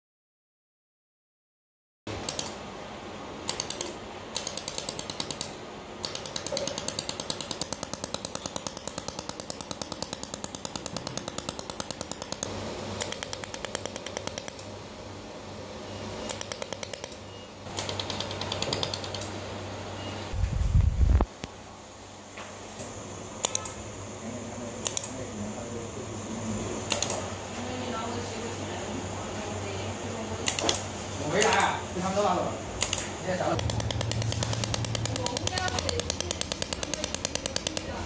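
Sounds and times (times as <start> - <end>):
laser welder rapid clicks: 3.4 - 14.6, 16.3 - 19.3, 33.6 - 38.0
low machine hum: 31.8 - 38.0.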